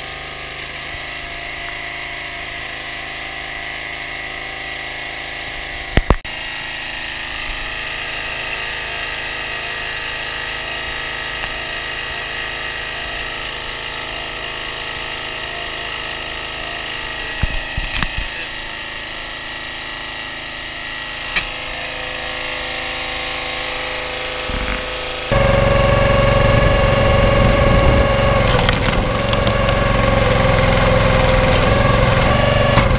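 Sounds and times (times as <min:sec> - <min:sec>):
petrol engine running: 0:23.4 - 0:32.9.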